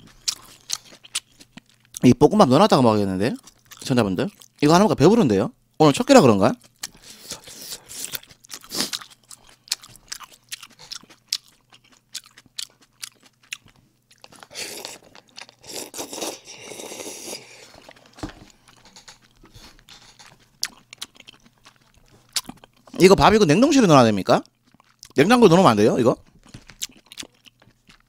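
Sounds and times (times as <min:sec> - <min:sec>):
person chewing noodles: 0:00.0 - 0:02.0, 0:03.4 - 0:04.6, 0:06.6 - 0:23.0, 0:24.4 - 0:25.2, 0:26.2 - 0:28.0
noodles slurped: 0:14.3 - 0:17.8.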